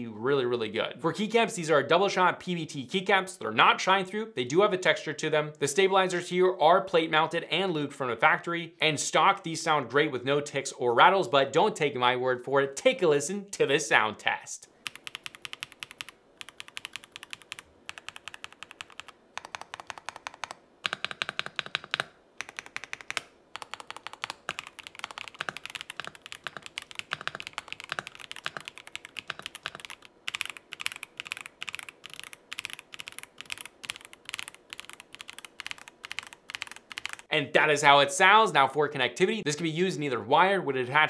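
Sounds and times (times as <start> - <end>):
mechanical keyboard typing: 14.8 - 37.3.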